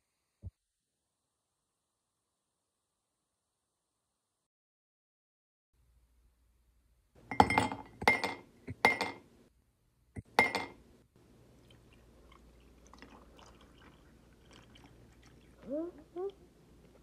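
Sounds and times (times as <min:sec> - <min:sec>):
milk pouring over ice: 0:11.6 - 0:15.6.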